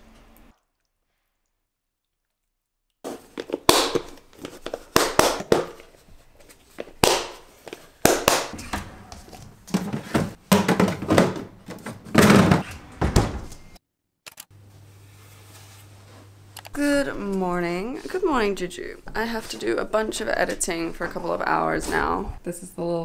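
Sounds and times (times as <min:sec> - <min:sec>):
containers set down: 0:08.6 - 0:13.4
door moving: 0:08.6 - 0:13.8.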